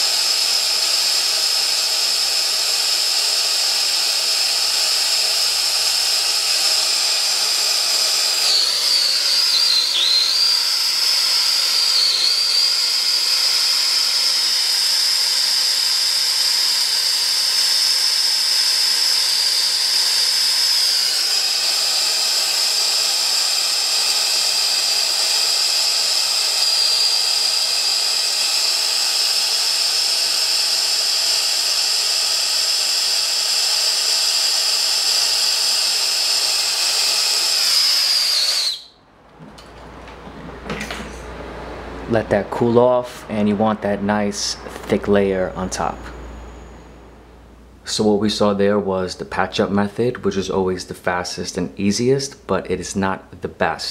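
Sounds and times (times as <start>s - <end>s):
torch hissing and whistling: 0.0s - 39.0s, 42.5s - 47.2s.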